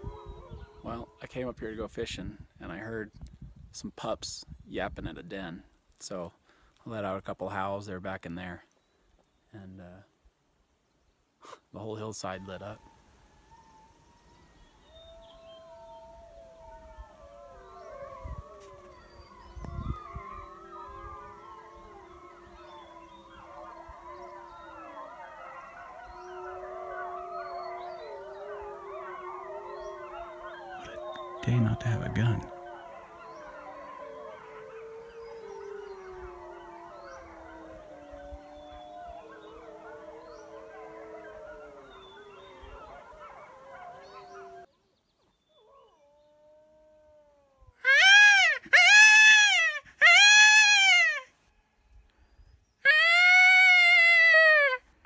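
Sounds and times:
wolves howling in chorus: 0:00.0 - 0:01.6, 0:12.2 - 0:44.7, 0:45.5 - 0:48.2
long low howl: 0:12.8 - 0:31.8, 0:32.4 - 0:44.7.

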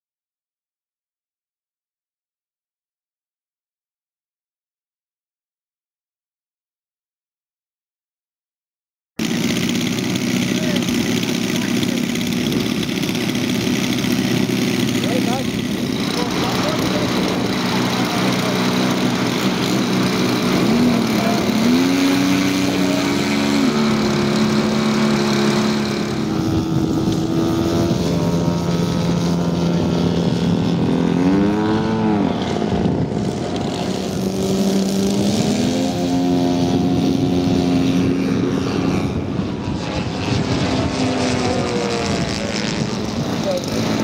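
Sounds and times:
model plane propeller drone: 0:09.2 - 0:44.0.

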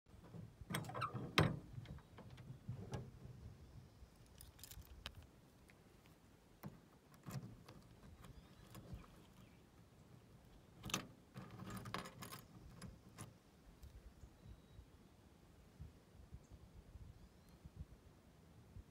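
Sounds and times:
key clicking and scraping in lock: 0:10.8 - 0:13.3.

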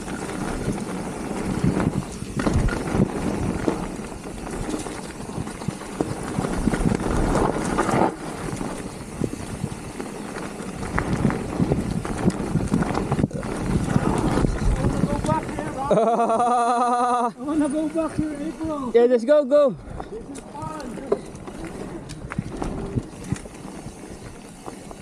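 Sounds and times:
wind on microphone: 0:00.0 - 0:15.9, 0:21.4 - 0:25.0
bike knocking and rattling: 0:00.0 - 0:19.2, 0:19.8 - 0:25.0.

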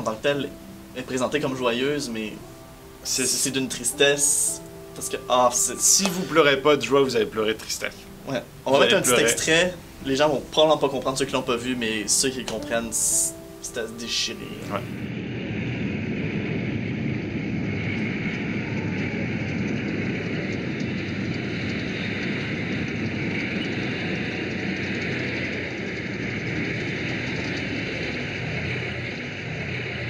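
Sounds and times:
tank engine and tracks rumbling: 0:15.1 - 0:30.0.

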